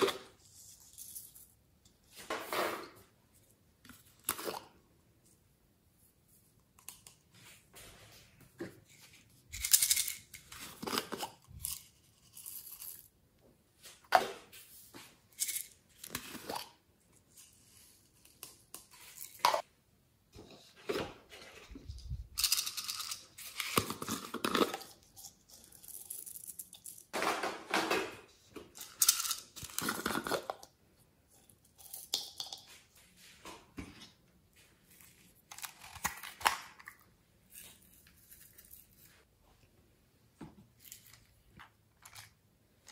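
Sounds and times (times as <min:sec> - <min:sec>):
plastic containers rustling and scraping: 0:00.0 - 0:04.8, 0:07.2 - 0:13.2, 0:13.8 - 0:19.7, 0:20.4 - 0:30.7.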